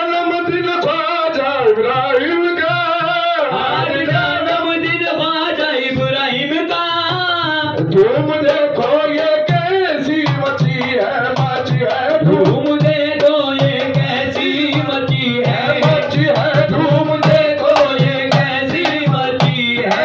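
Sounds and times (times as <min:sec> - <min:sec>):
devotional singing: 0:00.0 - 0:20.0
tabla drum pattern: 0:00.0 - 0:20.0.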